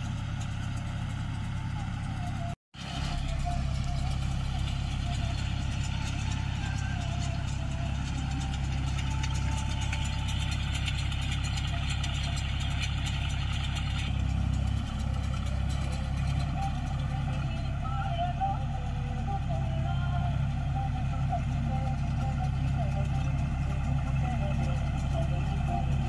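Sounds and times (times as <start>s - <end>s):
tractor diesel engine running: 0.0s - 26.0s.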